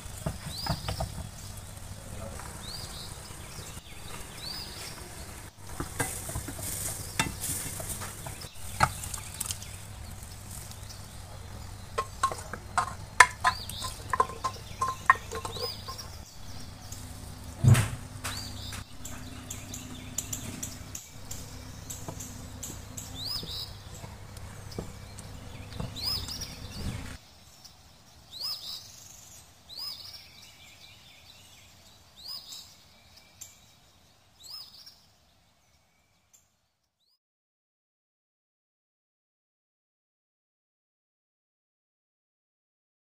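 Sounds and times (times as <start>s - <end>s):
food sizzling: 0.0s - 19.2s
spatula scraping metal pan: 12.0s - 16.2s
heavy knock: 17.6s - 18.9s.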